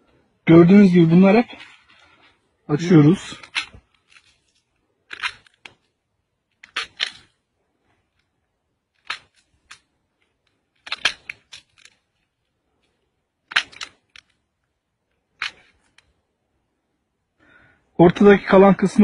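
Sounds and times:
pomegranate rind cracking: 3.3 - 7.4, 8.9 - 12.4, 13.4 - 14.7.

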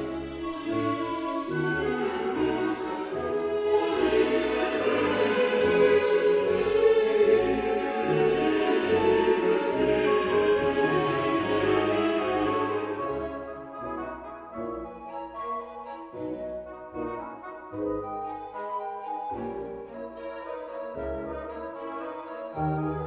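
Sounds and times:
choir singing sustained notes: 0.0 - 16.3
orchestral music: 0.0 - 23.0.

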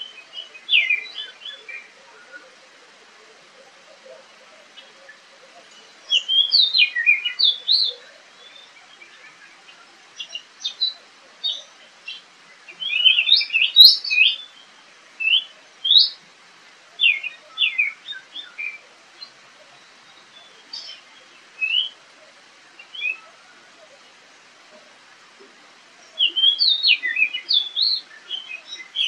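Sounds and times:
bird singing whistled notes: 0.0 - 2.4, 5.8 - 14.6, 15.2 - 16.2, 17.0 - 22.0, 22.8 - 23.3, 26.1 - 29.0.

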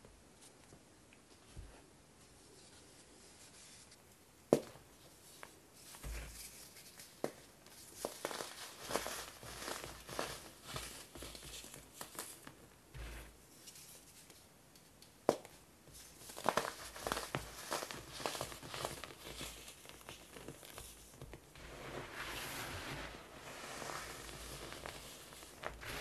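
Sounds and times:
crumbs and powder falling: 5.9 - 13.9, 15.2 - 26.0
hands crushing baking soda blocks: 6.1 - 13.3, 16.2 - 26.0.

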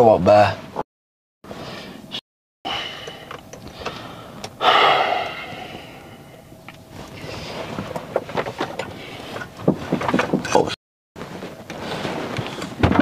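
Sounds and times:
steady noise haze: 1.5 - 10.0.

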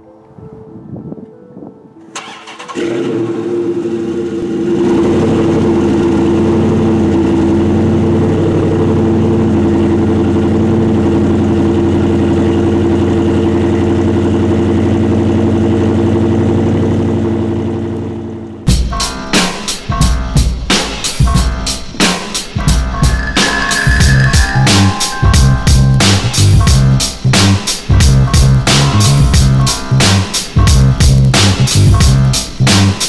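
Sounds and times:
car engine starting and idling: 2.1 - 18.7.

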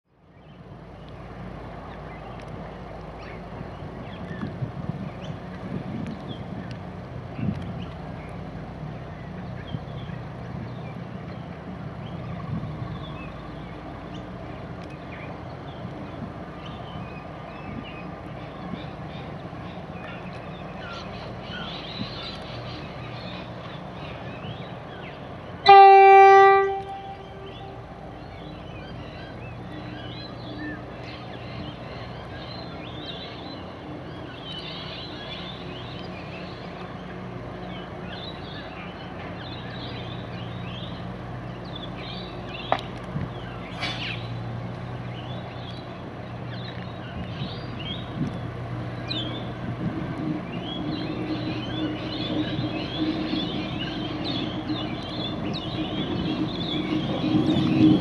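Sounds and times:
birds chirping: 0.2 - 58.0
train horn blast: 25.6 - 28.0.

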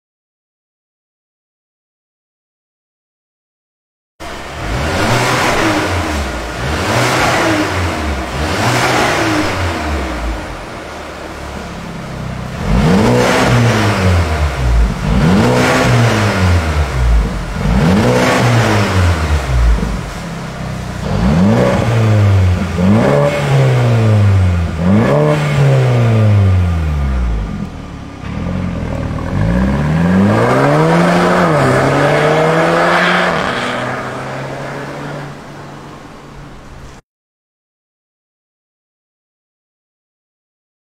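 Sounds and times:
car exhaust revving: 4.2 - 35.1.

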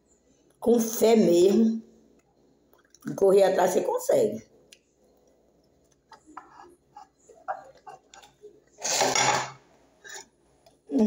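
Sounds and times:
noisy scrape: 8.8 - 10.3.

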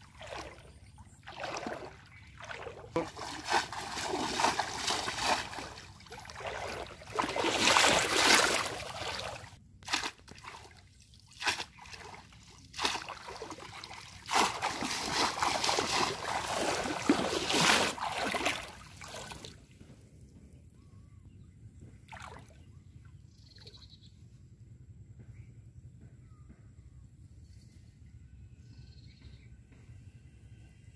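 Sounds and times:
shallow water splashing: 0.0 - 19.6.

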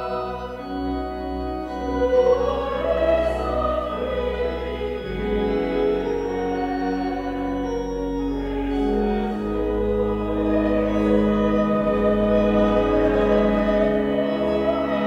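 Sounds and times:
children's choir singing: 0.0 - 7.3, 8.8 - 15.0
organ playing a hymn: 0.0 - 15.0.

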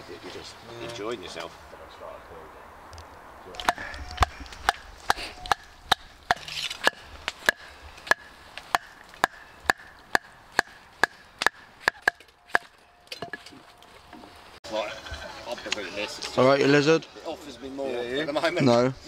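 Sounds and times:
hatchet chopping wooden stick: 3.6 - 13.4.

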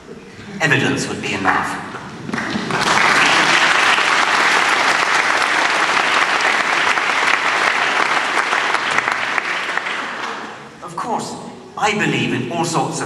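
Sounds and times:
audience applauding: 2.2 - 10.8.

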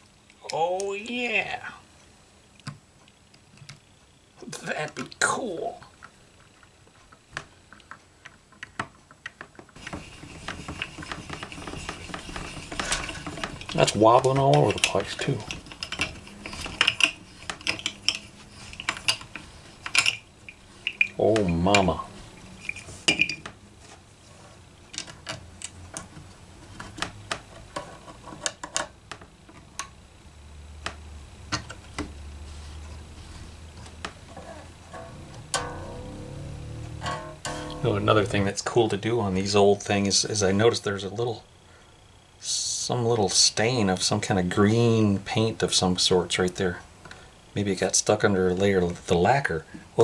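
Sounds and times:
low steady hum: 0.0 - 50.0
rapid clicking and scraping of tuners: 5.9 - 23.0, 32.9 - 38.8
clicks and metallic ticks of strings: 34.9 - 36.4, 37.0 - 38.3.

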